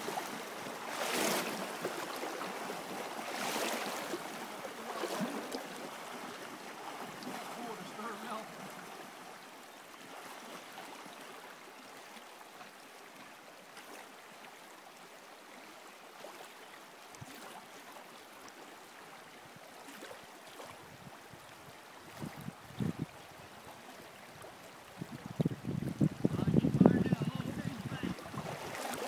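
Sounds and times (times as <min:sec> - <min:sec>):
river water flowing: 0:00.0 - 0:29.0.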